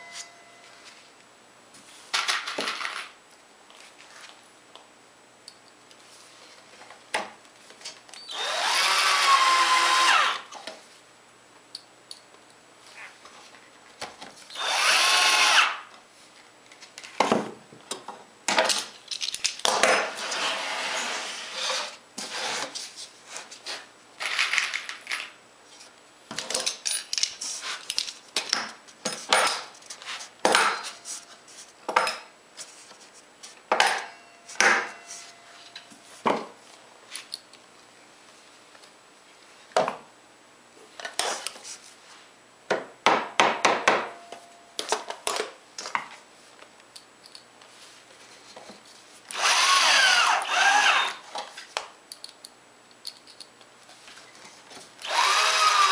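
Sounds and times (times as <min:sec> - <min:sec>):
cordless drill driving screw: 0:08.3 - 0:10.4, 0:14.5 - 0:15.8, 0:49.3 - 0:51.2, 0:55.0 - 0:55.9.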